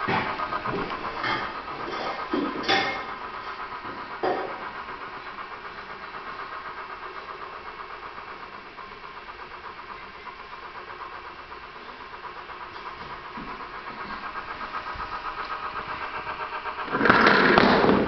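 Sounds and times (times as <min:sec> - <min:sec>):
small motor whirring: 0:00.0 - 0:18.0.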